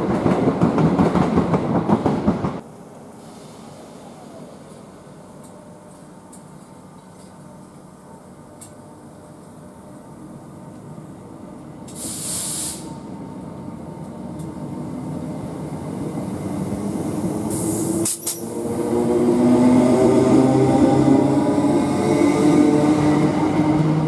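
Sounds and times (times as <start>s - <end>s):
air hiss bursts: 11.9s - 13.0s, 17.5s - 18.4s
electric train pulling away: 11.9s - 24.0s.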